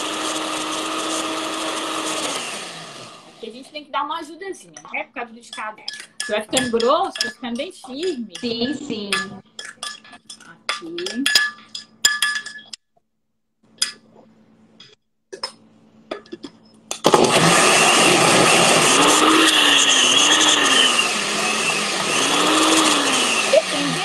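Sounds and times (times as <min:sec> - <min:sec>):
blender running through batter: 0:00.0 - 0:03.5, 0:17.0 - 0:24.0.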